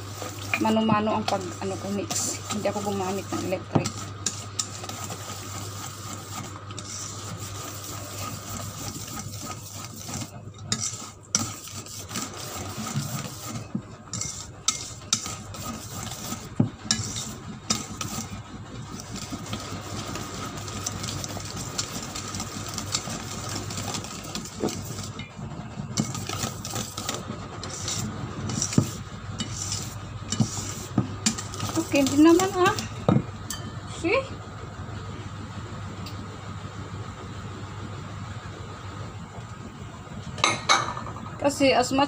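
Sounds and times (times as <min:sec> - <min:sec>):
whisk scraping metal bowl: 0:00.0 - 0:33.1
whisk clinking on bowl: 0:00.2 - 0:18.4.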